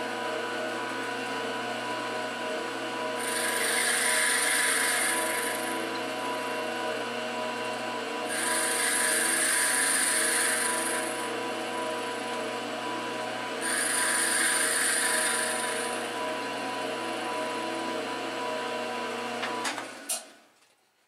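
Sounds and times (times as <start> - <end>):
milling machine motor hum: 0.0 - 20.1
end mill cutting rasp: 3.0 - 7.1, 8.2 - 18.2.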